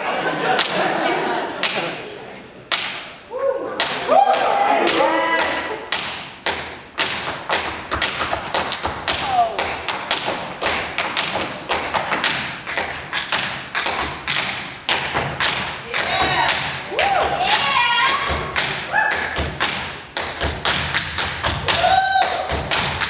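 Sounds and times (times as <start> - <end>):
sharp percussive thumps and taps: 3.8 - 21.8.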